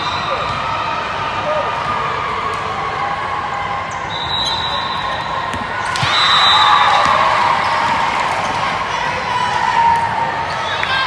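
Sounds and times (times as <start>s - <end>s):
crowd noise and shouting: 0.0s - 11.0s
referee whistle blasts: 4.1s - 7.2s
volleyball hits: 5.4s - 8.4s.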